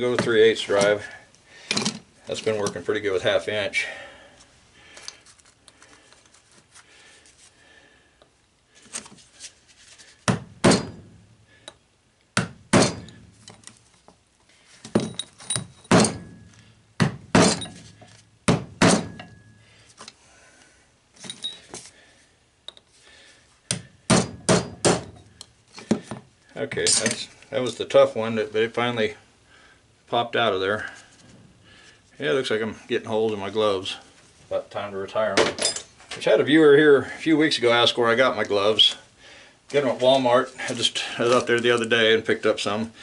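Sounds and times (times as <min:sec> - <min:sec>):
hammer striking metal: 0:10.6 - 0:11.1, 0:12.7 - 0:13.2, 0:18.5 - 0:19.5, 0:24.1 - 0:25.3.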